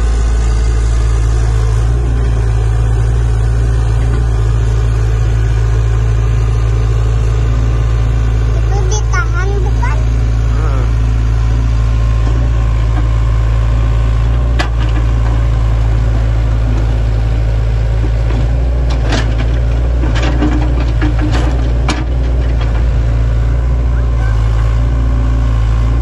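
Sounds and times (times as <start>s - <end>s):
excavator diesel engine running: 0.0s - 26.0s
sharp knocks and clanks: 18.0s - 22.9s.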